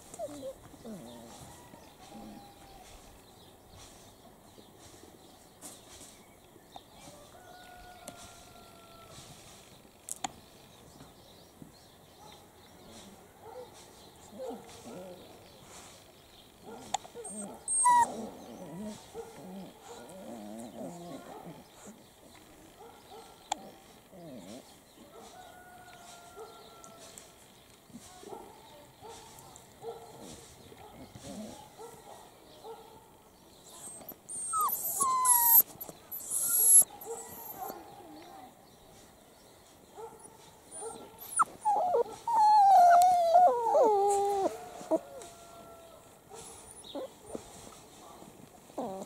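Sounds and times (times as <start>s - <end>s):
puppies growling and grumbling: 0.1s - 1.4s, 17.2s - 22.0s, 23.6s - 24.8s, 33.7s - 37.7s, 40.9s - 45.2s, 48.7s - 49.0s
puppy yelping: 17.2s - 18.8s, 33.8s - 37.7s, 40.7s - 44.6s.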